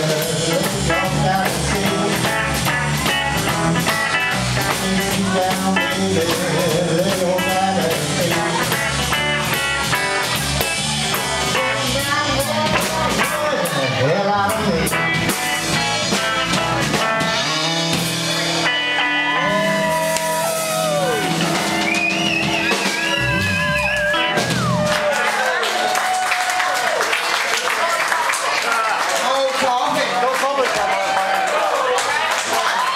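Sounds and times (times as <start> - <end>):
electric bass: 0.0 - 25.2
electric guitar playing lead: 0.0 - 25.2
drum kit: 0.0 - 26.2.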